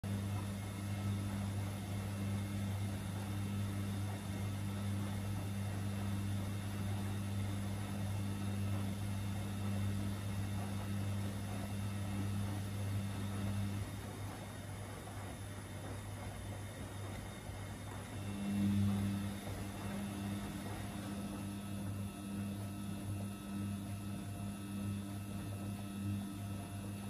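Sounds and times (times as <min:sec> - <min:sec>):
low machine hum: 0:00.0 - 0:27.0.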